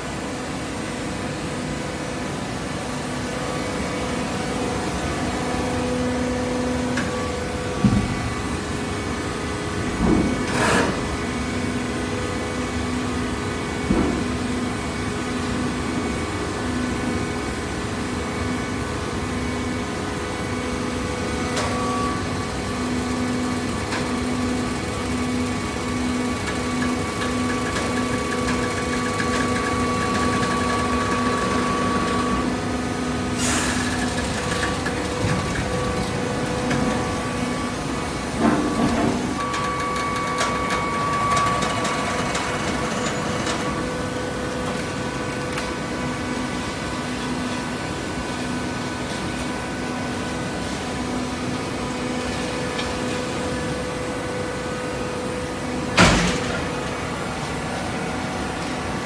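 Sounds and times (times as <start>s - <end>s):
loud metal clank: 56.0s - 56.8s.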